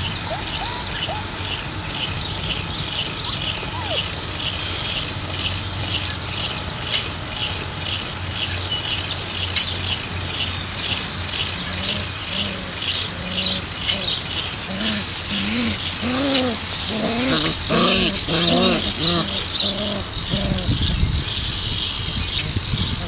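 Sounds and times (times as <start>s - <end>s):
puppies crying: 0.0s - 5.2s, 11.8s - 20.8s.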